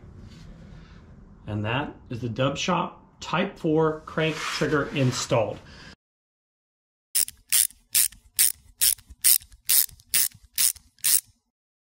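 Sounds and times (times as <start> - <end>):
socket wrench ratchet clicking: 7.2 - 11.4.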